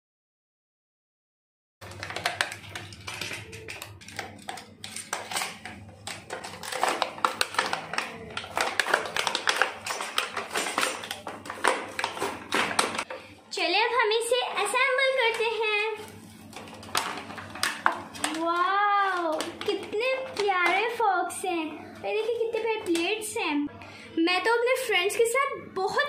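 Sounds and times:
plastic packaging crinkling: 1.8s - 13.3s, 14.4s - 21.0s.

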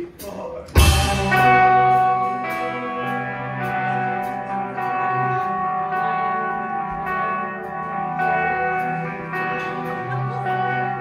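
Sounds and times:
drum cymbal hits: 0.0s - 3.2s
bass guitar: 0.0s - 11.0s
electric guitar chords: 0.7s - 11.0s.

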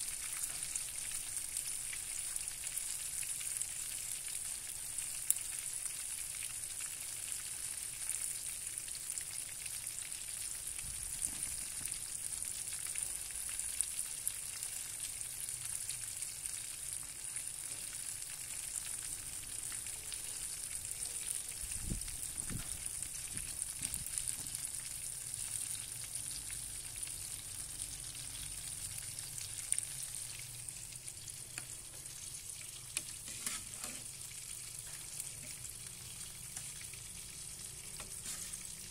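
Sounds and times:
fish sizzling in a frying pan: 0.0s - 38.9s.

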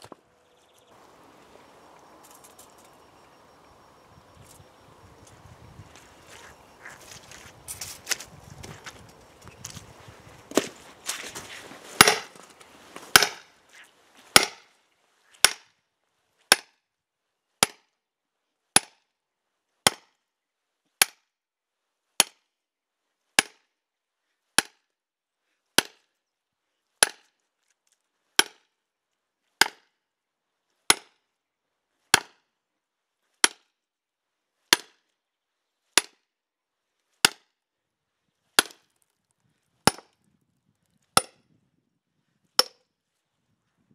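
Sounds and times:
wood cracking: 10.4s - 14.6s
sledgehammer striking steel wedge: 12.0s - 12.4s, 13.1s - 13.5s, 14.3s - 14.6s, 39.9s - 40.1s.

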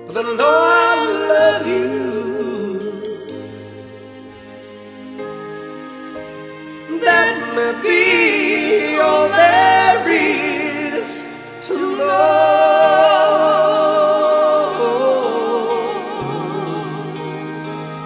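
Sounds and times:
voices singing a ballad duet: 0.0s - 18.0s.

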